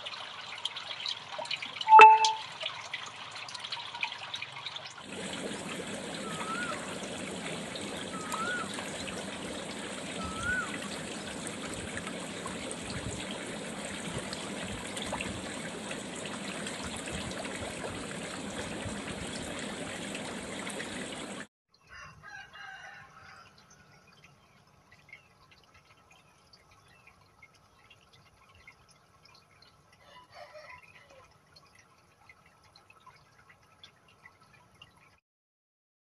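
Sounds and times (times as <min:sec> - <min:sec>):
water dripping: 0:00.0 - 0:21.4, 0:23.2 - 0:35.2
water trickling in fish tank: 0:00.0 - 0:35.2
whistled bird call: 0:01.9 - 0:02.4, 0:06.2 - 0:06.9, 0:08.1 - 0:08.7, 0:10.2 - 0:10.8.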